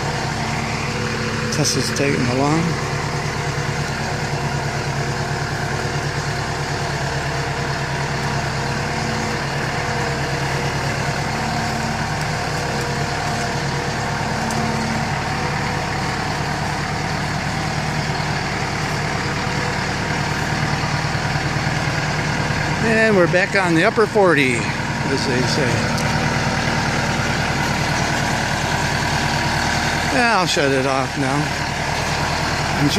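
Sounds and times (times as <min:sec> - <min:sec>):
tractor diesel engine running: 0:00.0 - 0:32.9.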